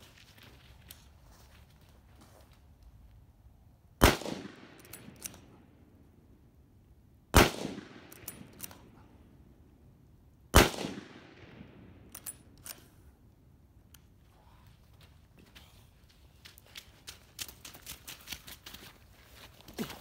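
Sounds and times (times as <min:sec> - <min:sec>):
rifle shots with echo: 0:04.0 - 0:05.7, 0:07.3 - 0:09.0, 0:10.5 - 0:12.5
rifle bolt clicks: 0:04.2 - 0:05.5, 0:07.6 - 0:09.0, 0:12.1 - 0:13.0.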